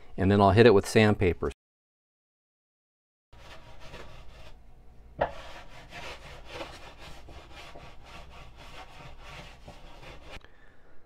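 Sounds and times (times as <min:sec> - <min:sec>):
plane shaving wood: 0:03.4 - 0:04.6, 0:05.2 - 0:10.4.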